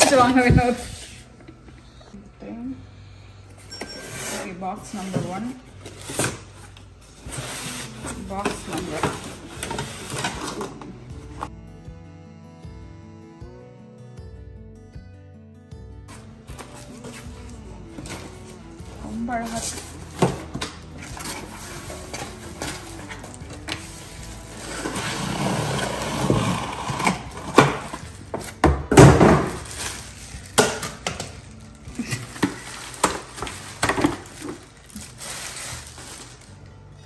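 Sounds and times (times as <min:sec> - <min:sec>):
cardboard and plastic rustling: 0:04.0 - 0:11.5, 0:16.1 - 0:36.7.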